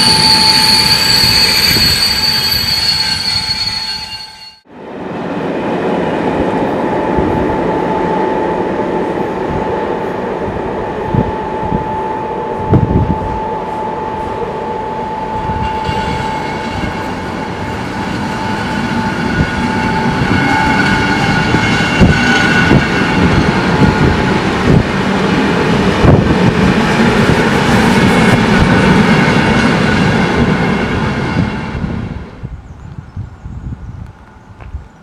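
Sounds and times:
high whining and squealing: 0.0 - 4.6, 11.0 - 24.9
steady train whine: 0.0 - 34.9.

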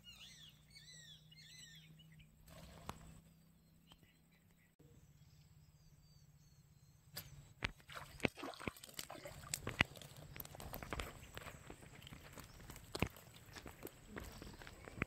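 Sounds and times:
eel splashing in water: 7.8 - 10.6.

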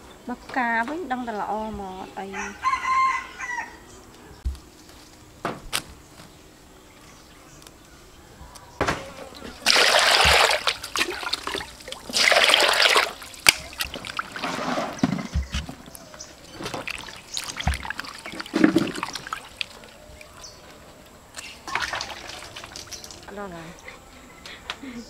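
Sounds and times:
water splashing into metal bowl: 9.6 - 15.0, 16.5 - 20.3, 21.6 - 23.4.

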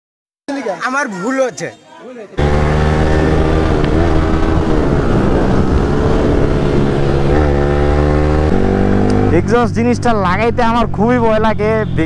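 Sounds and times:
motorcycle engine revving: 2.4 - 12.0.

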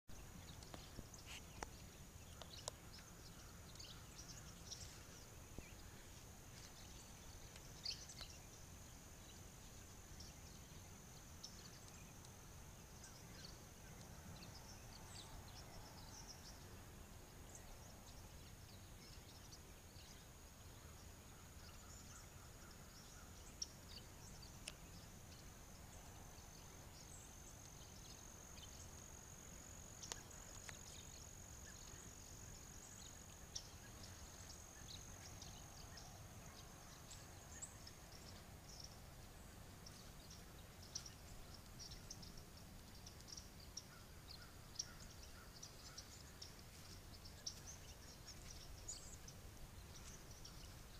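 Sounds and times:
low background hiss: 0.1 - 50.9
small birds chirping: 0.1 - 50.9.

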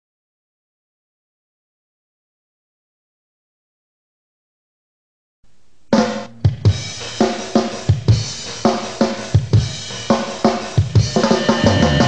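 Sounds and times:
rock drum kit playing: 5.9 - 12.0.

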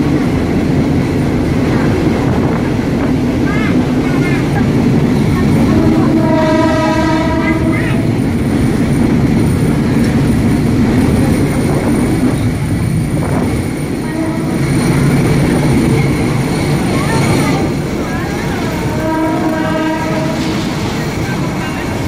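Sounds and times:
diesel railcar rumble: 0.0 - 22.0
train horn tone: 5.5 - 8.2, 14.0 - 14.9, 18.8 - 20.7.

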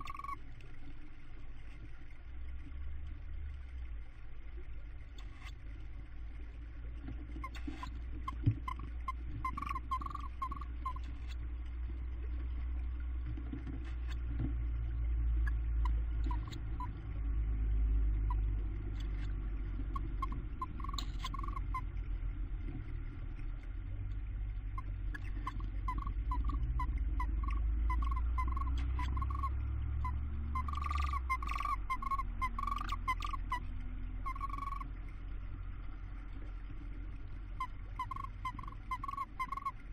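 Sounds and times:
owls chittering calls: 0.0 - 0.4, 8.6 - 11.0, 16.3 - 16.9, 19.9 - 21.8, 24.8 - 33.6, 34.2 - 34.9, 37.6 - 39.8
steady low hum: 0.0 - 39.9
small scratchy clicks: 5.1 - 5.6, 6.9 - 12.5, 13.1 - 14.6, 15.5 - 17.0, 18.2 - 22.0, 24.8 - 39.9.

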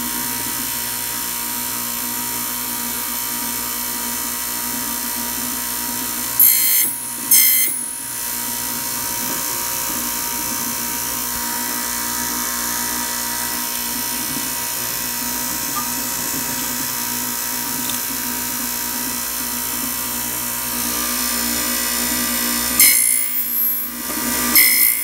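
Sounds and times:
high-pitched cutter screeches: 6.4 - 8.0, 22.8 - 23.9, 24.6 - 25.0
key-cutting machine running: 6.4 - 8.1, 20.7 - 25.0.

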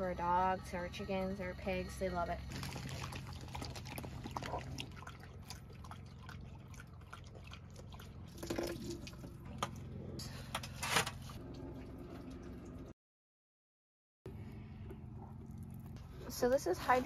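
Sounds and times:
low hum: 0.0 - 13.0, 14.3 - 17.0
dogs lapping from metal pan: 2.5 - 10.0.

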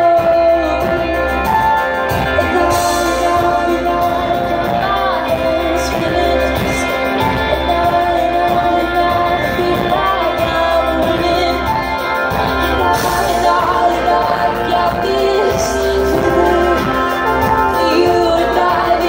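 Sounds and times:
electric bass: 0.0 - 19.0
guitar: 0.0 - 19.0
keyboards: 0.0 - 19.0
woman singing: 0.0 - 19.0.

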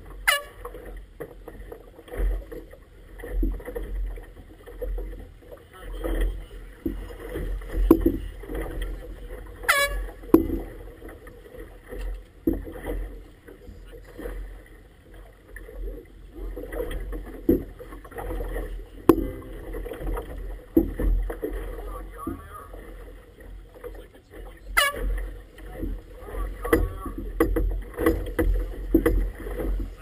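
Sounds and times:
waves slapping against boat: 0.0 - 30.0
sharp knocks: 26.6 - 29.9.

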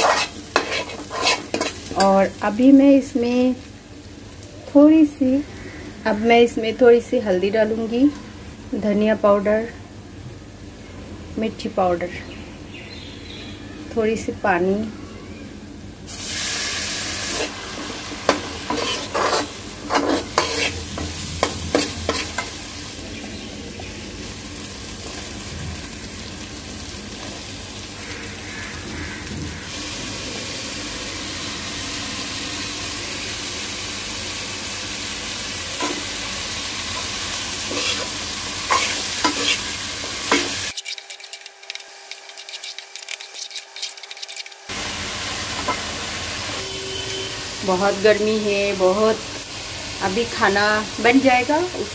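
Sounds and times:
metal spatula scraping a pan: 0.0 - 2.1, 18.3 - 22.5, 37.7 - 44.6
curry sizzling in metal pan: 0.0 - 9.7, 16.1 - 51.9.

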